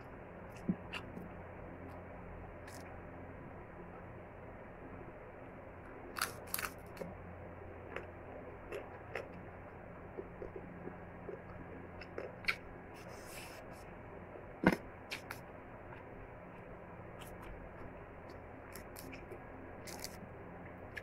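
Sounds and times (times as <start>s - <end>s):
crab shell cracking and snapping: 6.2s - 7.1s, 18.7s - 20.2s.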